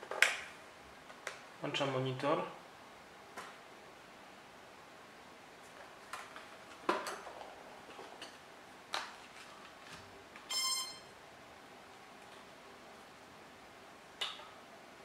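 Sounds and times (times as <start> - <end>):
short electronic beep: 10.5 - 11.1.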